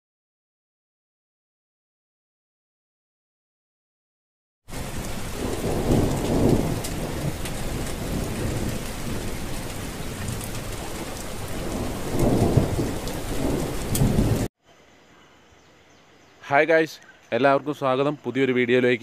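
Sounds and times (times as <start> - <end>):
low thunder rolls: 4.7 - 14.5
steady rain: 4.7 - 14.5
raindrop ticks: 4.8 - 14.5.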